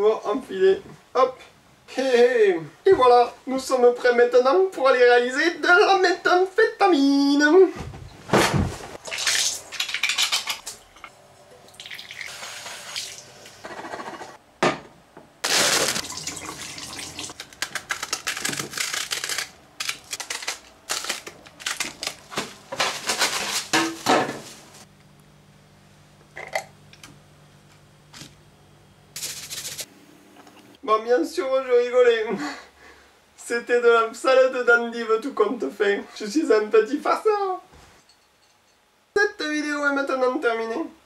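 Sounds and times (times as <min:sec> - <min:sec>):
endive leaves breaking off: 0:17.3 - 0:24.7.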